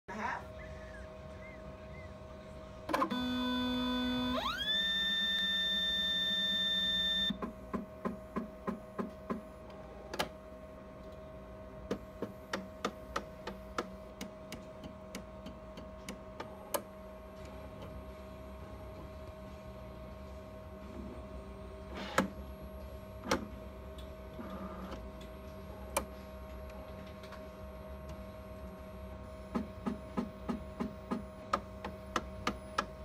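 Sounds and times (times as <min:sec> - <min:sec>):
steady hum: 0:00.1 - 0:33.0
motor whine: 0:02.9 - 0:07.4.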